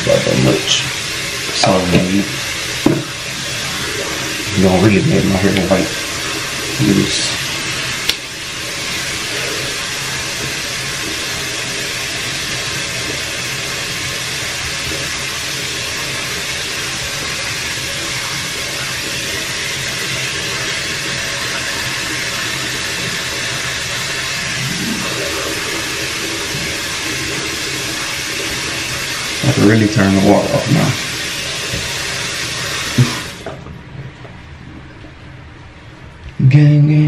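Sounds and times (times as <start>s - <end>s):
tap running into a sink: 0.0s - 3.6s, 4.3s - 6.0s, 25.0s - 33.7s.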